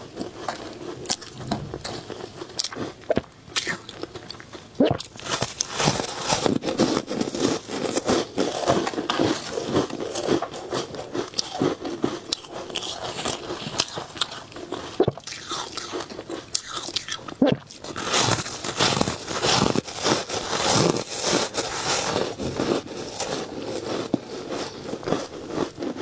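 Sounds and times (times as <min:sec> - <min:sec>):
crunching ice: 0:04.9 - 0:26.0.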